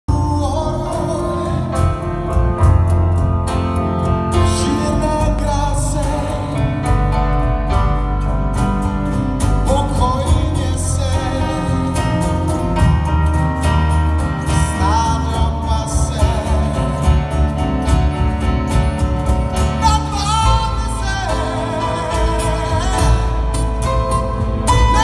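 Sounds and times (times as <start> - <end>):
man singing into a microphone: 0.1 - 2.4, 4.3 - 7.3, 9.5 - 13.4, 14.4 - 17.7, 19.6 - 24.0, 24.7 - 25.0
acoustic guitar: 0.1 - 25.0
electric guitar: 0.1 - 25.0
keyboard: 0.1 - 25.0.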